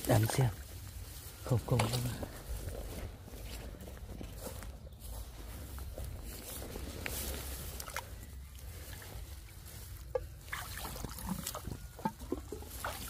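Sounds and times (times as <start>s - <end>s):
water trickling and splashing: 6.3s - 13.0s.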